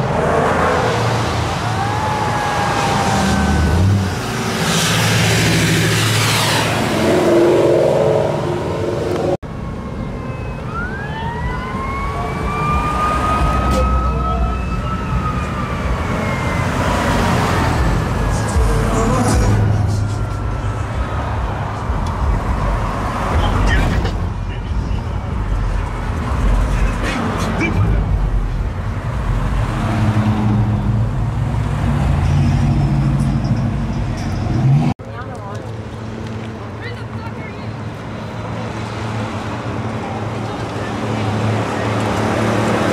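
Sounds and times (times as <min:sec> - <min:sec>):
siren-like wail: 0:01.5 - 0:04.2, 0:07.0 - 0:19.0, 0:19.6 - 0:21.6
slow car rumble: 0:08.7 - 0:42.9.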